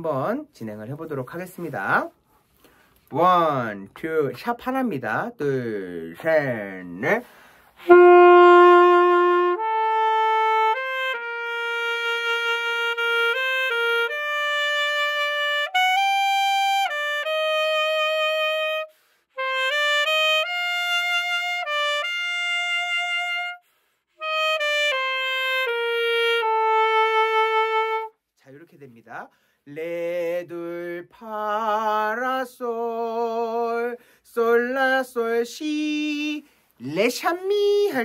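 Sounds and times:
solo alto saxophone melody: 7.8 - 28.2.

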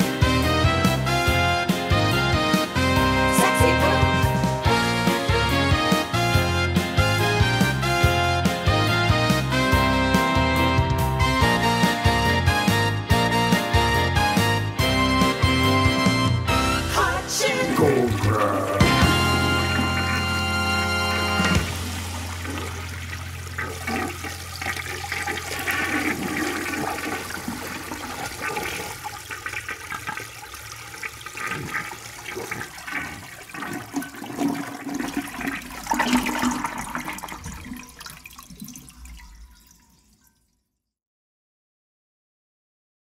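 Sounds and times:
toilet flushing: 17.0 - 40.4.

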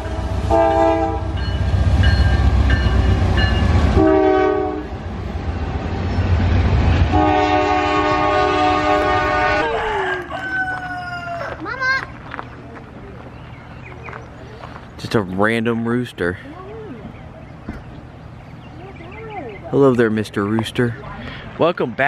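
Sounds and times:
train air horn blasts: 0.0 - 1.4, 3.9 - 5.0, 7.1 - 10.2
rail cars rumbling: 0.0 - 22.0
rooster crowing: 9.2 - 11.6.

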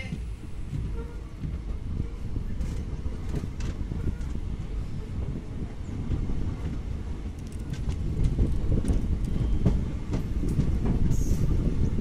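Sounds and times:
train coaches rumbling: 0.0 - 12.0
wheels and couplings clicking: 6.1 - 12.0.

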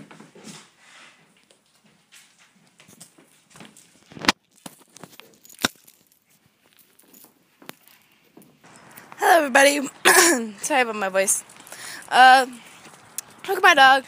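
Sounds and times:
chain leash rattling: 2.9 - 9.1, 11.3 - 13.5.

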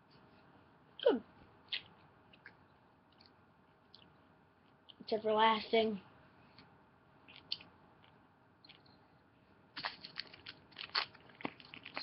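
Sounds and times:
plastic candy bag crinkling: 9.8 - 12.0.

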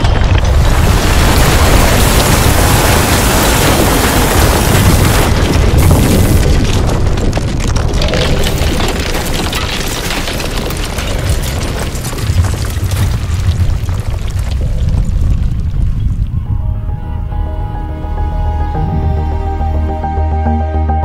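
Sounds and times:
falling masonry crashing: 0.0 - 16.4
deep earthquake rumble: 0.0 - 19.9.

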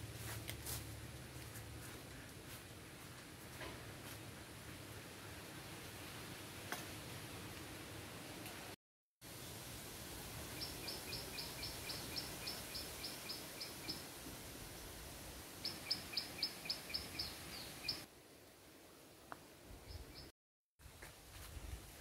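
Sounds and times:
steady background hiss: 0.0 - 22.0
bird chirping: 10.6 - 14.0, 15.6 - 18.1.

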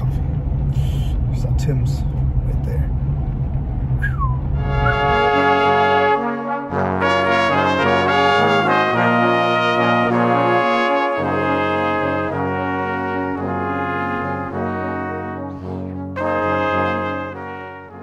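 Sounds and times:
steady bass: 0.0 - 18.0
sustained chords: 0.0 - 18.0.

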